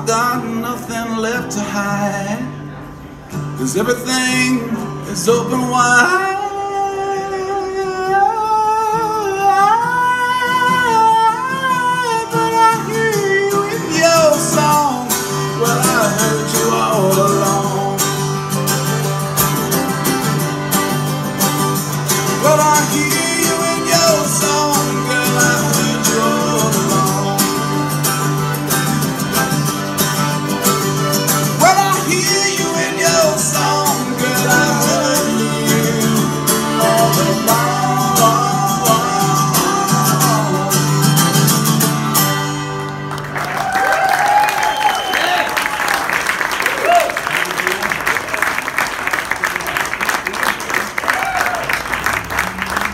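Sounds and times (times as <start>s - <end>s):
strummed acoustic guitar: 0.0s - 43.4s
picked mandolin: 12.3s - 43.3s
button accordion: 18.2s - 42.8s.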